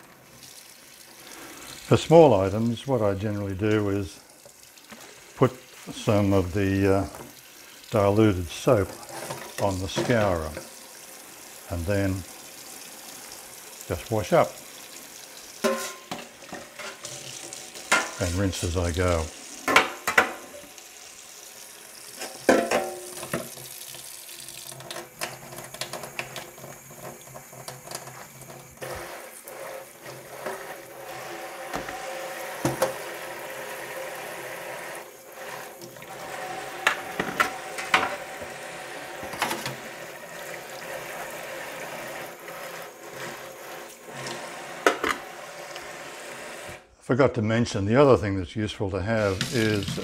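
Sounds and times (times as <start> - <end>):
tap water running into sink: 0.0 - 46.8, 49.1 - 50.0
utensils clinking on steel sink: 8.6 - 10.8, 15.6 - 20.6, 22.2 - 23.6, 35.8 - 38.5, 49.2 - 50.0.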